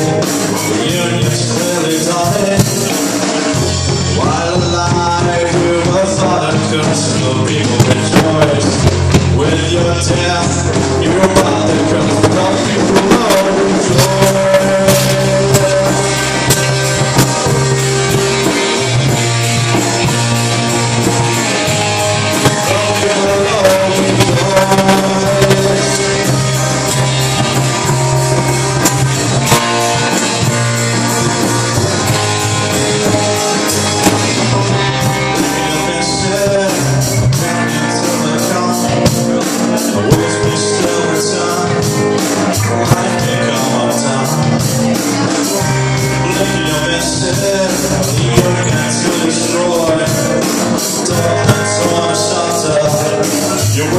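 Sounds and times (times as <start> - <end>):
bass guitar: 0.0 - 53.9
drums: 0.0 - 53.9
electric guitars: 0.0 - 53.9
person singing: 0.0 - 53.9
cymbals beat: 10.8 - 53.9.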